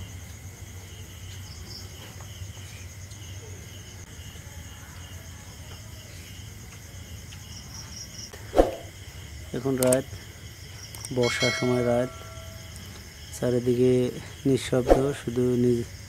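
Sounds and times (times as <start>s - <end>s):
crickets and insects chirping: 0.0s - 16.0s
low steady hum: 8.6s - 13.4s.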